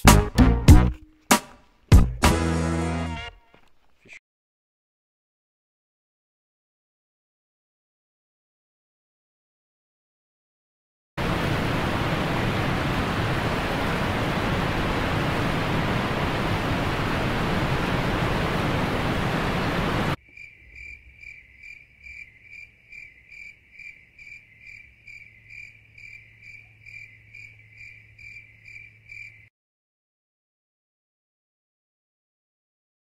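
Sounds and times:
cricket chirping: 20.2s - 29.5s.

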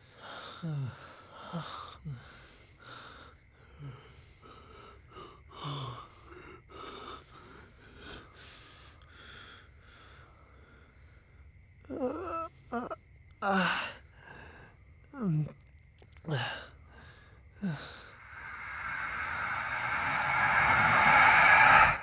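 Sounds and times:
man breathing heavily: 16.4s - 22.0s.

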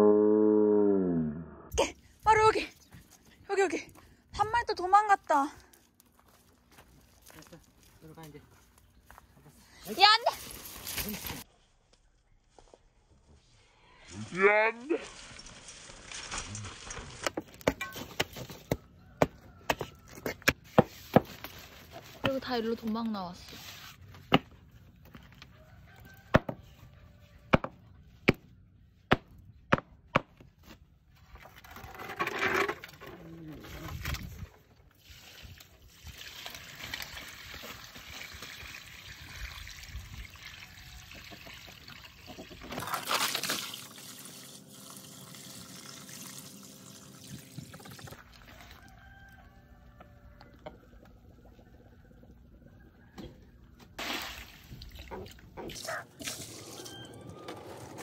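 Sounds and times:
water poured from a bucket: 14.9s - 17.4s, 33.9s - 48.9s, 54.0s - 58.0s.

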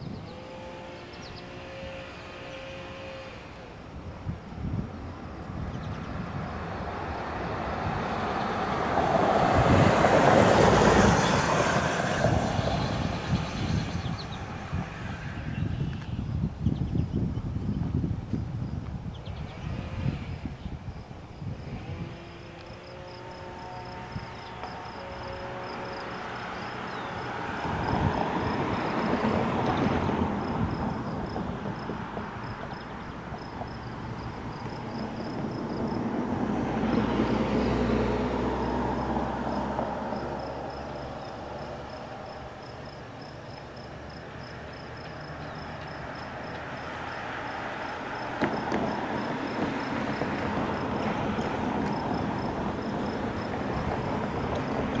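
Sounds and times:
insect chirping in rapid pulses: 18.6s - 54.8s.

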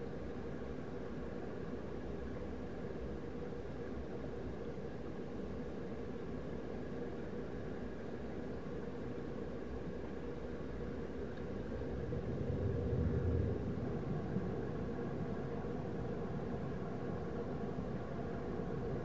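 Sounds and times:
underwater rumble and hiss: 11.4s - 19.0s.

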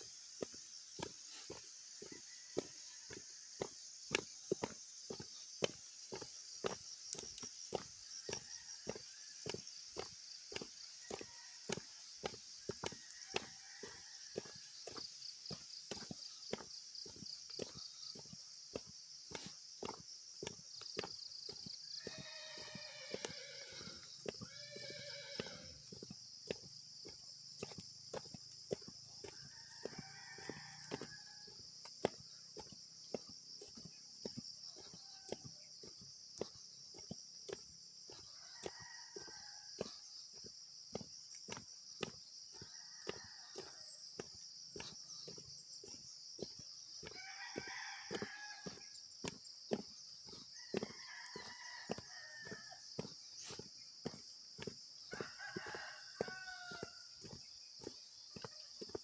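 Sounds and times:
footsteps on dirt trail: 0.0s - 59.0s
roosters crowing: 11.0s - 15.3s, 21.6s - 25.9s, 28.8s - 31.7s, 38.1s - 39.9s, 42.6s - 44.0s, 46.9s - 49.0s, 50.5s - 53.5s, 55.0s - 58.9s
high-pitched insect drone: 21.6s - 26.6s.

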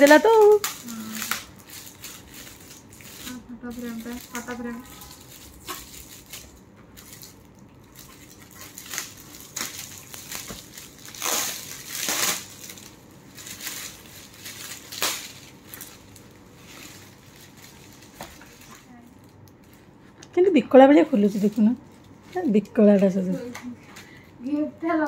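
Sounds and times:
foil gift wrap crinkling: 0.0s - 25.0s.

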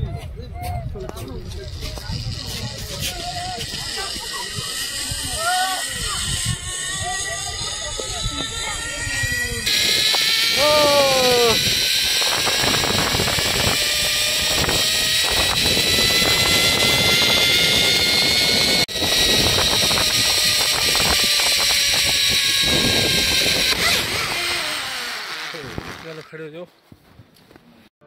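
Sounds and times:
wind rush on microphone: 0.0s - 24.7s
zipline trolley wheels whining: 1.5s - 26.3s
person crying out: 10.5s - 11.6s.

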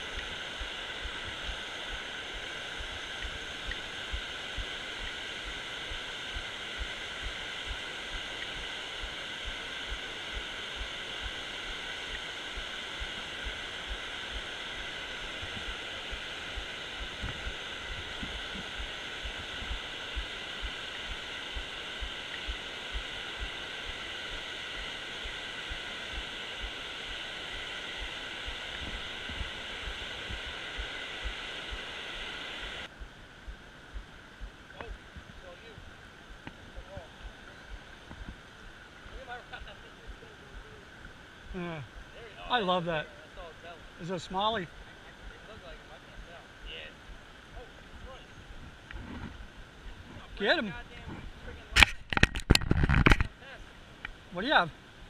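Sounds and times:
water rushing over a dam: 0.0s - 32.9s
soft low thumps: 32.9s - 42.2s.

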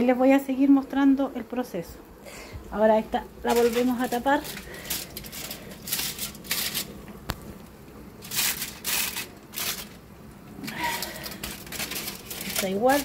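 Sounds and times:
aluminium foil crinkling: 3.1s - 13.0s.

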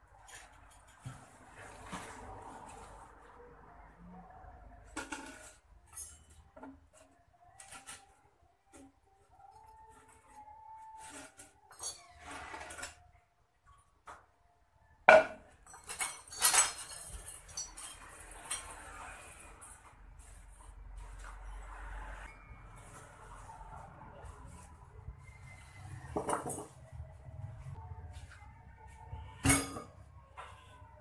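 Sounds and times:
metal tubes clinking and clattering: 11.0s - 13.0s, 15.5s - 19.8s.

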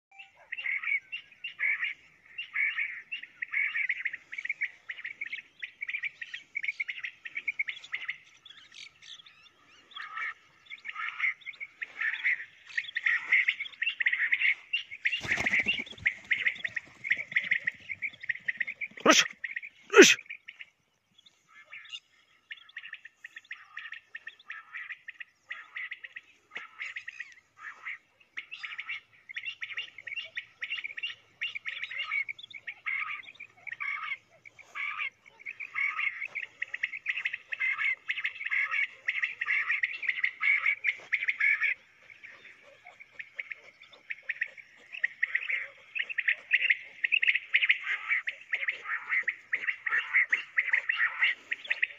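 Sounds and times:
birds chattering: 0.1s - 51.9s.

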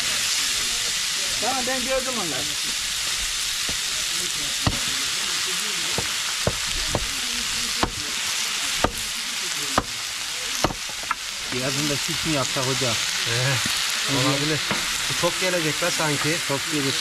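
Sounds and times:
food sizzling in pan: 0.0s - 17.0s
utensil tapping pan: 5.9s - 7.2s.

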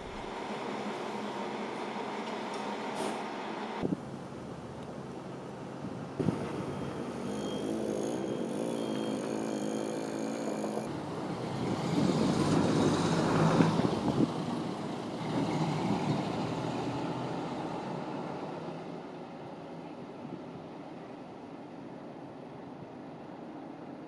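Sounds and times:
bus diesel engine pulling away: 6.2s - 19.3s.

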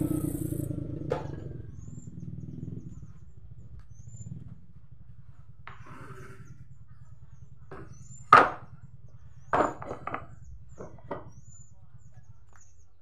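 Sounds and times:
wooden frames knocking together: 9.6s - 11.3s.

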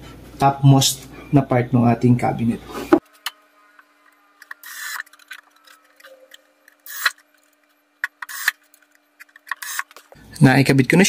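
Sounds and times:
rasping turns with clicks: 3.0s - 10.2s.

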